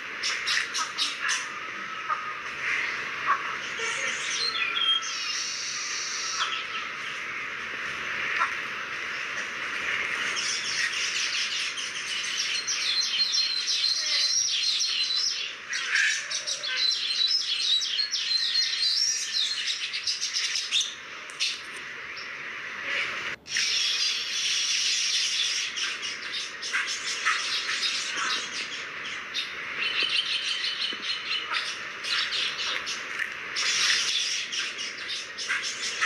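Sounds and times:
steady hiss: 0:00.0 - 0:04.4, 0:05.0 - 0:13.2, 0:19.9 - 0:36.0
small birds chirping and trilling: 0:00.0 - 0:36.0.

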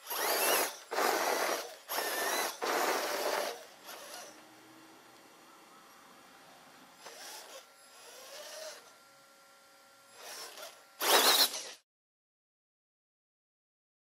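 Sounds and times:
electric motor whirring: 0:00.0 - 0:05.1, 0:06.9 - 0:11.8.

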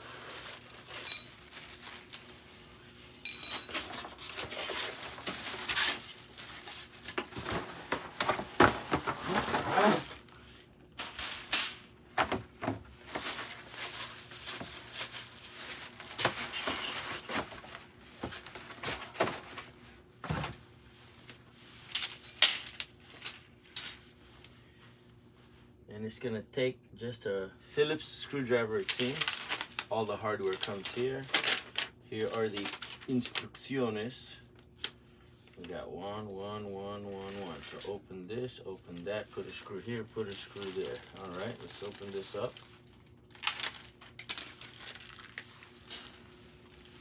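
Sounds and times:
plastic packaging rustling: 0:00.0 - 0:11.6, 0:12.2 - 0:19.8, 0:28.7 - 0:33.6, 0:37.2 - 0:37.8, 0:39.3 - 0:47.0
metal pieces knocking and clinking: 0:03.3 - 0:03.9, 0:45.8 - 0:46.3.

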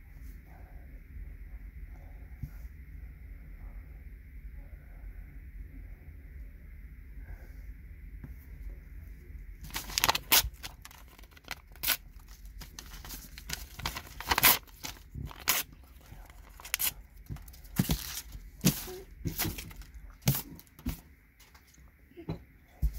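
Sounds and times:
paper tearing: 0:09.7 - 0:17.0.

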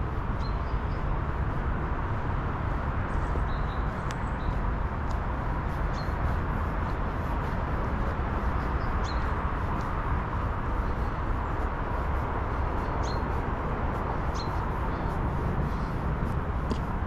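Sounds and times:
high bird chirps: 0:12.8 - 0:13.3, 0:14.3 - 0:14.6.

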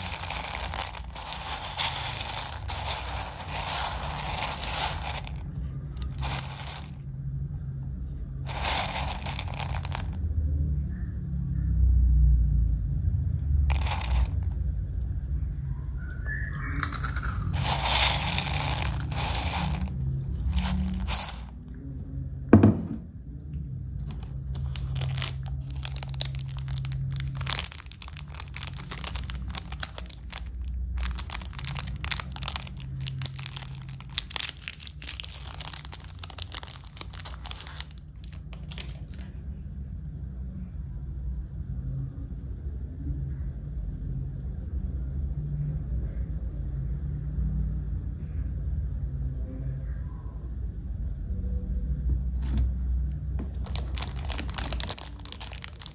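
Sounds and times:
plastic wrapper crinkling and tearing: 0:00.0 - 0:05.4, 0:08.5 - 0:10.2, 0:16.8 - 0:21.5, 0:24.0 - 0:39.3, 0:53.5 - 0:55.9
cereal rattling in ceramic bowl: 0:00.0 - 0:07.0, 0:08.5 - 0:10.2, 0:13.7 - 0:14.6, 0:16.8 - 0:21.6, 0:24.1 - 0:39.2, 0:53.6 - 0:55.9.

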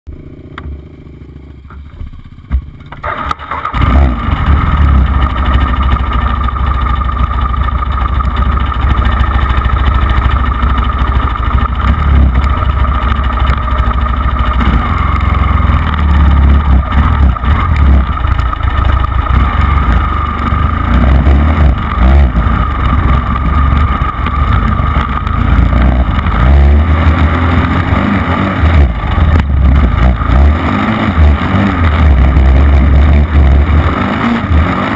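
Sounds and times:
dirt bike engine revving: 0:03.0 - 0:06.0, 0:10.1 - 0:34.9.

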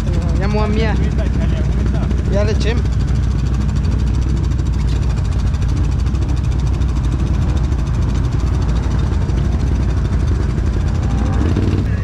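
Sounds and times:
atv engine idling: 0:00.0 - 0:12.0.

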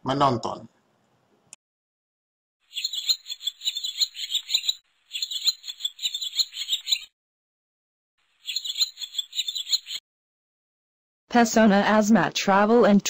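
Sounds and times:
high chirping animal calls: 0:02.6 - 0:07.1, 0:08.4 - 0:10.0.

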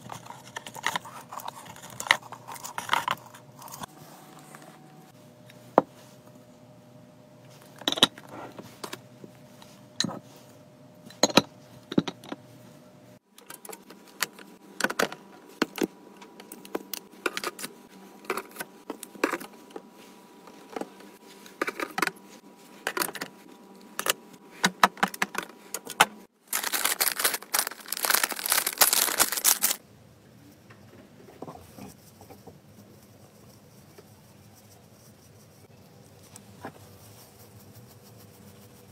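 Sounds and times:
plastic package crinkling: 0:26.4 - 0:29.8.

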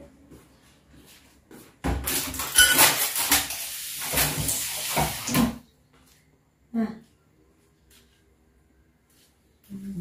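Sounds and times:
tap running water into sink: 0:02.1 - 0:05.6.

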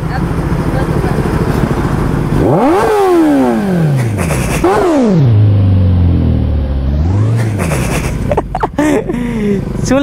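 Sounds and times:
motorcycle engine idling: 0:00.0 - 0:06.9
motorcycle engine revving: 0:00.0 - 0:08.6.

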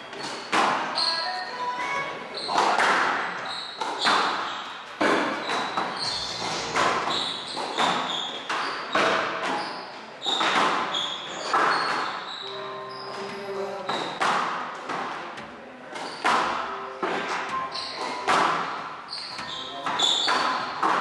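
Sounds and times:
shoes squeaking on court: 0:00.0 - 0:21.0
squash ball hits echoing: 0:00.1 - 0:01.1, 0:02.4 - 0:12.3, 0:13.9 - 0:21.0.

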